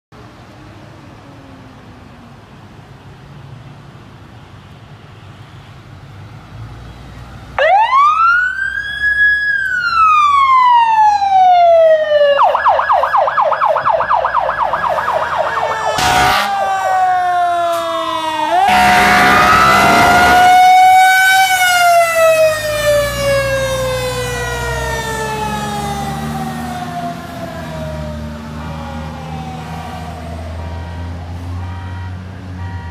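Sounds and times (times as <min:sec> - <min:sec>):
faint street noise: 0:00.1 - 0:32.9
emergency siren wailing and yelping: 0:07.6 - 0:31.3
loud horn blast: 0:15.6 - 0:17.0, 0:18.2 - 0:21.0, 0:30.6 - 0:32.9.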